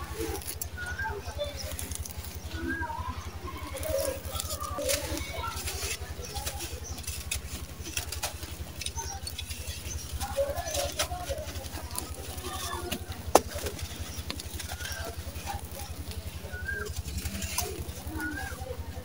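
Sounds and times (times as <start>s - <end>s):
sand pattering onto sandy floor: 0.0s - 19.0s
sand-cement lumps crunching by hand: 0.0s - 19.0s.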